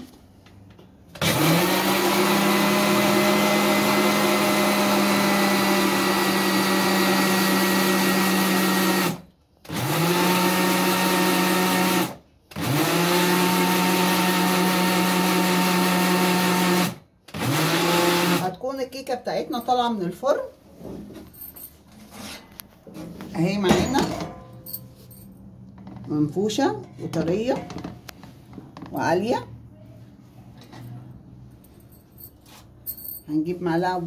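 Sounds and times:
blender motor running: 1.2 - 18.5.

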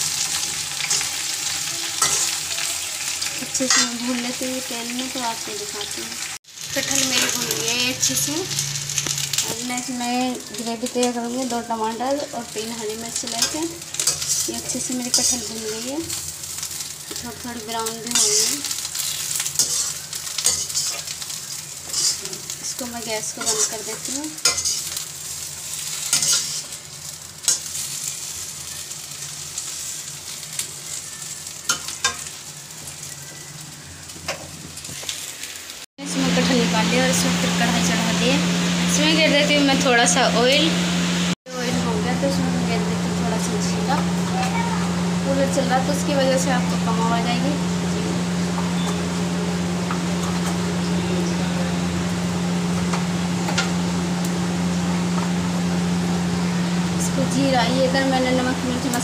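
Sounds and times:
electric fan humming: 0.0 - 26.3, 36.0 - 59.0
jackfruit sizzling in hot oil: 0.0 - 59.0
metal spatula scraping pan: 3.6 - 4.0, 18.1 - 21.1, 21.9 - 22.4, 23.4 - 25.0, 26.0 - 26.8
seeds popping in hot oil: 6.5 - 11.7, 12.6 - 25.2.

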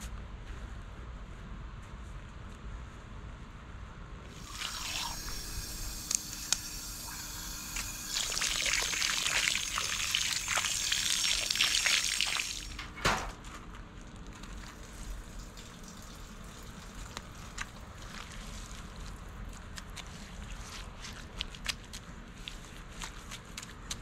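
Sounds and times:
water from hose pouring onto soil: 4.3 - 5.7, 6.5 - 12.8, 14.4 - 19.2
hands scratching wet soil: 16.5 - 24.0.

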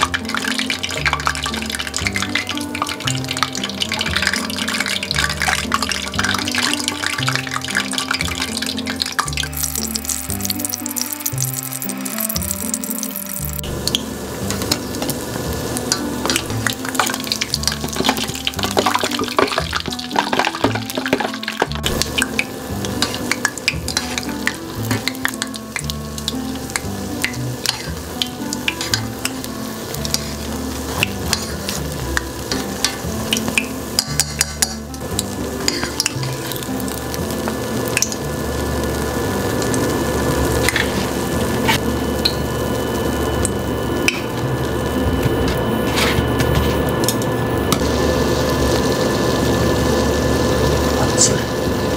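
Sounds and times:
oil sizzling and crackling: 0.0 - 51.9
chopsticks clicking against pot: 32.5 - 36.6.

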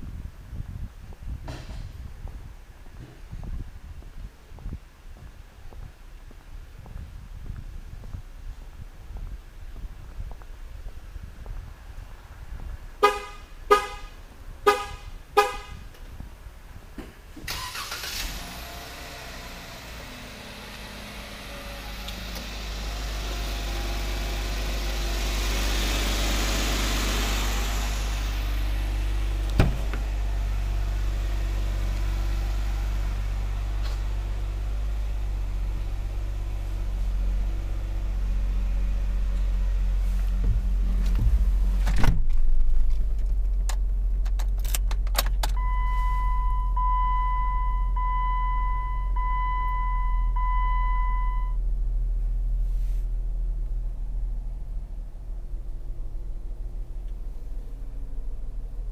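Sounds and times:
thump: 1.4 - 2.0, 29.5 - 30.1, 40.4 - 43.1
car engine idling: 7.6 - 58.9
car horn toots: 13.0 - 15.9.

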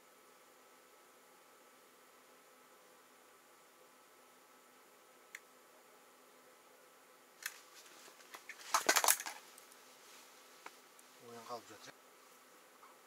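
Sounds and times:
rustling: 7.4 - 13.0.

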